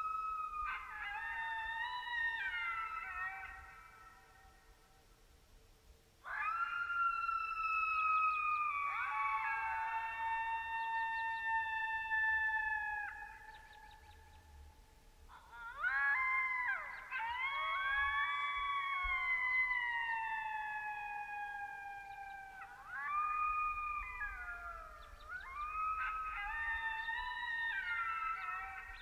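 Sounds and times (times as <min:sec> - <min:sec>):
coyotes howling: 0:00.0 - 0:05.0, 0:06.2 - 0:14.7, 0:15.3 - 0:29.0
coyote yips: 0:06.3 - 0:14.2, 0:15.4 - 0:29.0.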